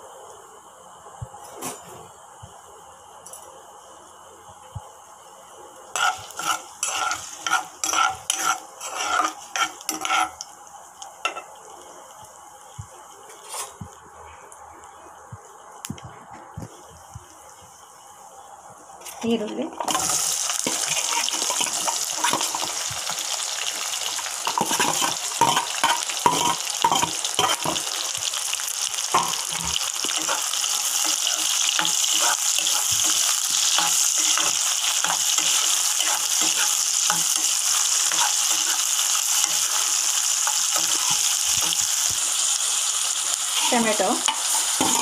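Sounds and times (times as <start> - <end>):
onions sizzling in hot oil: 4.8 - 13.2, 19.1 - 45.0
spatula scraping and knocking pan: 6.0 - 10.4, 19.8 - 23.2, 24.1 - 28.0, 29.1 - 42.3, 44.2 - 45.0.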